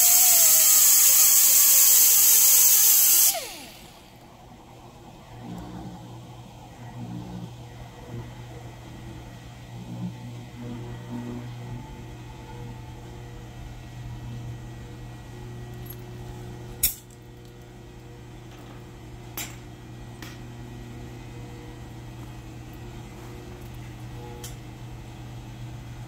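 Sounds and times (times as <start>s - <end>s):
wood lathe humming: 0.0s - 6.2s.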